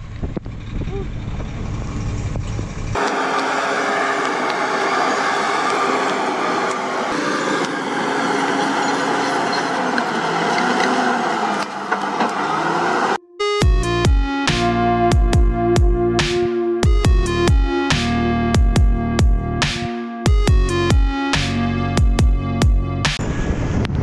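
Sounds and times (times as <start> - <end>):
bulldozer diesel engine running: 0.0 - 14.1
truck diesel engine running: 0.0 - 14.4
wind on microphone: 23.2 - 24.0.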